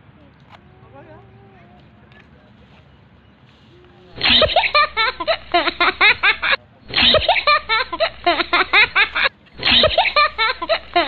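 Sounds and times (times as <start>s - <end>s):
people laughing hard: 4.2s - 11.0s.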